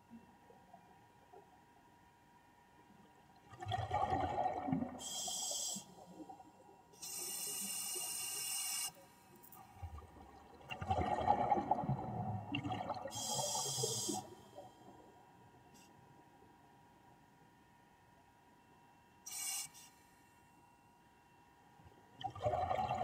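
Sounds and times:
exhaled bubbles gurgling: 3.4s - 5.1s, 9.8s - 14.2s, 22.2s - 23.0s
regulator inhale hiss: 5.0s - 6.0s, 7.0s - 9.2s, 13.1s - 14.6s, 19.3s - 20.2s.

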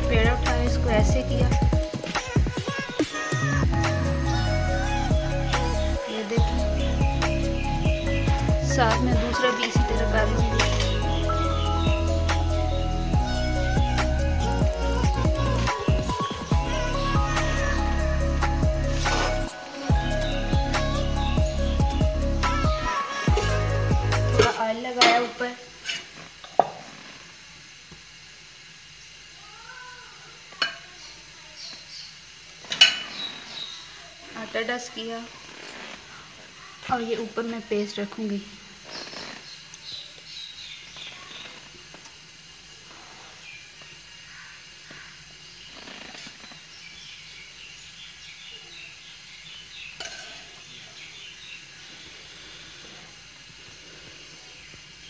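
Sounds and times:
background hiss: 0.0s - 55.0s
distant cry: 1.8s - 8.6s, 9.2s - 24.4s.

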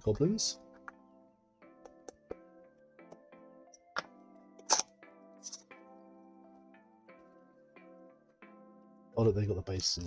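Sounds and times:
quiet background music: 0.0s - 10.0s
packaging clicks and taps: 1.8s - 2.4s.

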